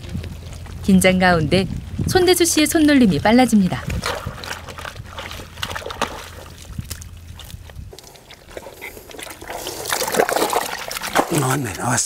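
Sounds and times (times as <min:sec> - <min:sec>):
water sloshing and dribbling: 0:00.0 - 0:12.0
hands squelching in wet mud: 0:02.4 - 0:11.8.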